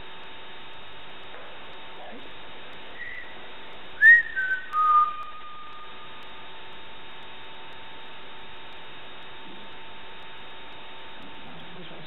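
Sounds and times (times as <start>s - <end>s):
faint steady hum: 0.0s - 12.0s
person whistling: 3.0s - 3.4s, 4.0s - 5.9s.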